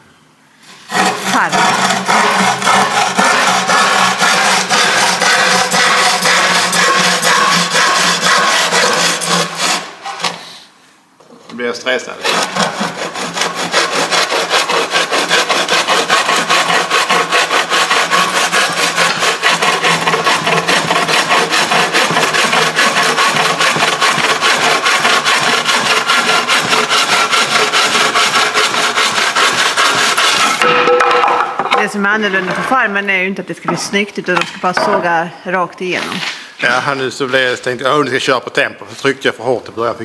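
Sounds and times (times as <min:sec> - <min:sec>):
bow saw cutting wood: 0:00.7 - 0:10.6, 0:12.2 - 0:31.3.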